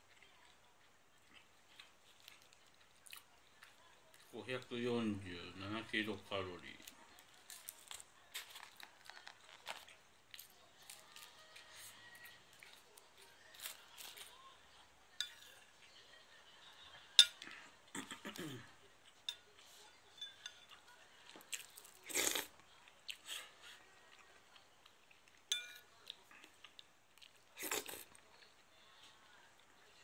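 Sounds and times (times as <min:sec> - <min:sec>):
chewing: 0:00.0 - 0:04.3, 0:06.8 - 0:14.4, 0:19.0 - 0:29.1
chopsticks clinking on a bowl: 0:15.2 - 0:15.6, 0:17.2 - 0:17.6, 0:19.0 - 0:20.8, 0:25.5 - 0:26.2.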